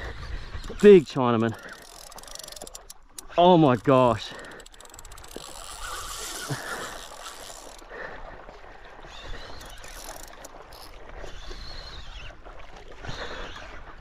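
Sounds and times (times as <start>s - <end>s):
water lapping against a paddleboard: 0.0s - 14.0s
fishing reel ticking and whirring: 0.3s - 7.9s, 9.1s - 12.0s.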